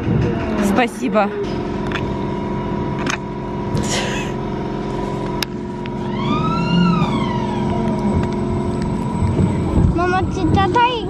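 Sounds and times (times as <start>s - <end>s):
roller coaster on steel track: 0.0s - 11.0s
high squeal: 6.0s - 9.2s.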